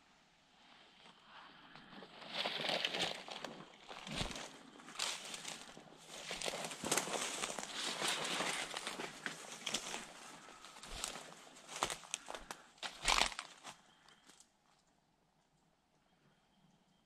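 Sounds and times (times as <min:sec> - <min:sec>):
footsteps rustling through leaf litter: 0:03.9 - 0:13.7
twigs snapping: 0:11.0 - 0:13.5.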